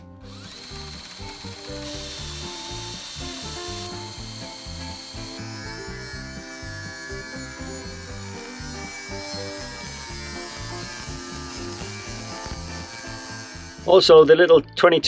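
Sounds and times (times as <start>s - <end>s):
cordless drill drilling metal: 0.0s - 14.0s
angle grinder cutting metal: 0.0s - 14.1s
background music: 0.0s - 15.0s.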